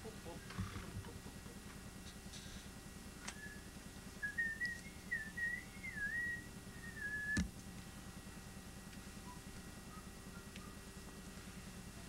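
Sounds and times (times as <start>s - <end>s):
person whistling a tune: 3.2s - 7.4s, 9.2s - 10.8s.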